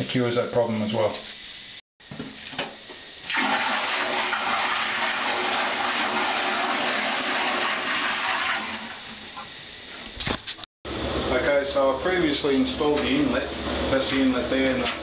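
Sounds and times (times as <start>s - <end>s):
water gushing into toilet bowl: 3.0s - 9.9s.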